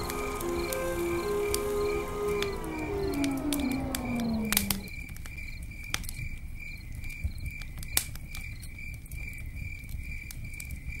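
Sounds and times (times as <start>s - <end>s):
crickets chirping: 0.0s - 7.6s
campfire popping and crackling: 0.0s - 11.0s.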